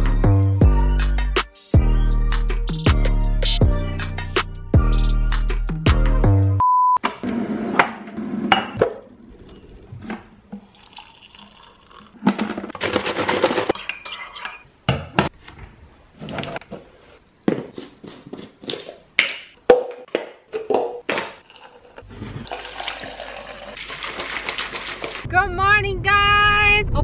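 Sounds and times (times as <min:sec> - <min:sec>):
short steady beep: 0:06.6 - 0:07.0
liquid pouring into mug: 0:10.5 - 0:12.2, 0:21.5 - 0:25.2.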